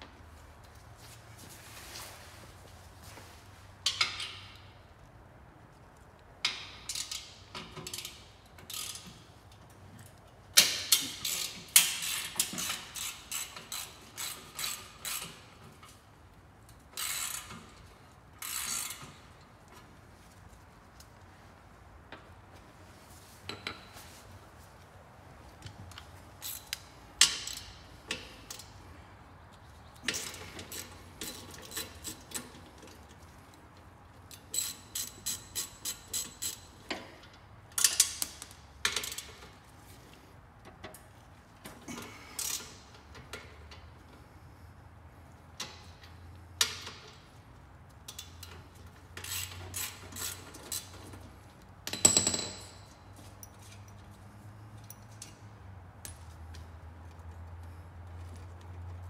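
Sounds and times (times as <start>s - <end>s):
hand ratchet clicking: 6.5s - 9.2s, 10.6s - 16.0s, 17.0s - 19.2s, 26.4s - 28.7s, 30.1s - 33.0s, 34.3s - 36.8s, 49.2s - 51.3s.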